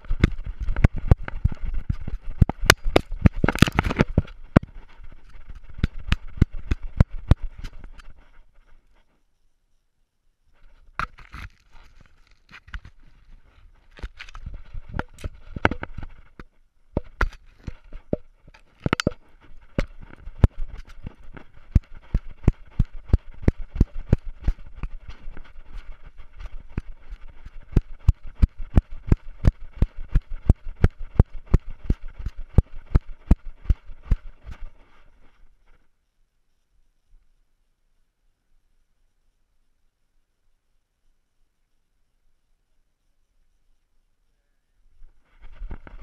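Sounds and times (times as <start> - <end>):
camera knocking and rattling: 0.0 - 8.2, 10.9 - 13.1, 13.9 - 34.7
continuous rustle: 0.0 - 37.5, 42.9 - 46.0.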